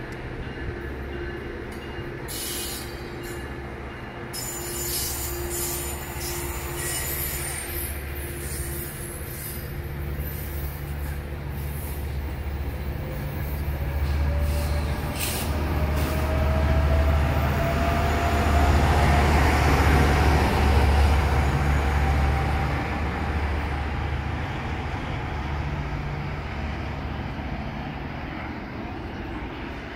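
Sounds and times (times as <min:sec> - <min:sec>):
diesel locomotive engine rumble: 0:00.0 - 0:29.9
train rolling past: 0:00.0 - 0:29.9.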